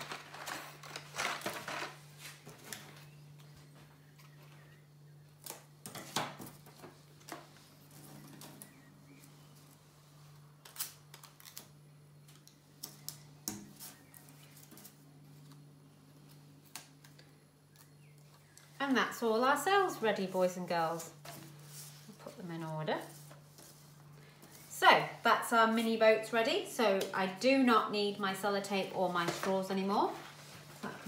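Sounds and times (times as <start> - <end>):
paper rustling and clicks: 0.0 - 3.0
faint steady hum: 0.0 - 31.0.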